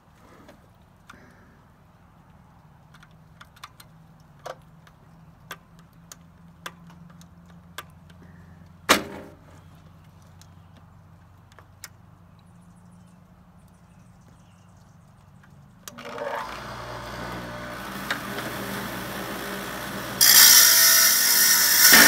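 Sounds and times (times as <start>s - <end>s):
wet saw motor humming: 15.9s - 22.0s
saw blade cutting rock: 20.2s - 22.0s.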